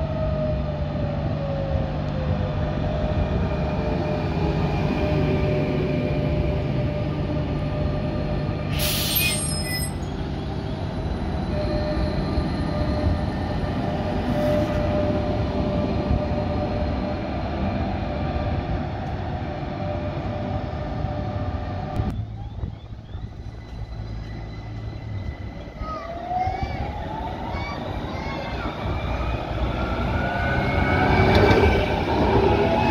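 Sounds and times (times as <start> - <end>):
street noise: 0.0 - 32.9
tram wheels rumbling on rails: 0.0 - 32.9
wheel squeal screech: 8.8 - 10.1.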